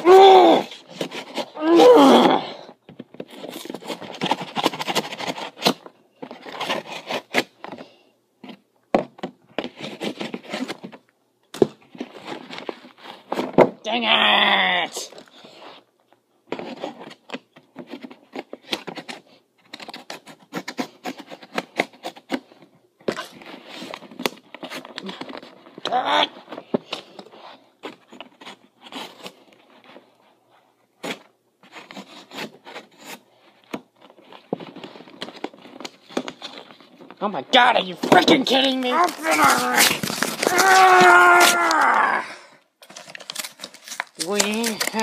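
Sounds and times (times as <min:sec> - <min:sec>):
cardboard box scratching and tearing: 0:38.2 - 0:42.1, 0:42.9 - 0:45.0.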